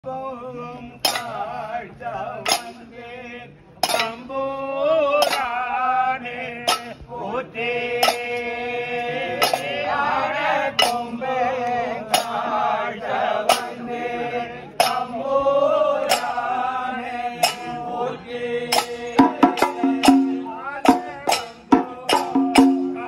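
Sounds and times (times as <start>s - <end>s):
men chanting together: 0.6s - 23.0s
sharp percussive strike: 1.0s - 1.5s, 2.4s - 2.9s, 3.8s - 4.2s, 5.2s - 5.5s, 6.6s - 7.0s, 8.0s - 8.5s, 9.4s - 9.8s, 10.7s - 11.2s, 12.0s - 12.5s, 13.4s - 13.9s, 14.8s - 15.2s, 16.0s - 16.5s, 17.4s - 17.9s, 18.7s - 23.0s.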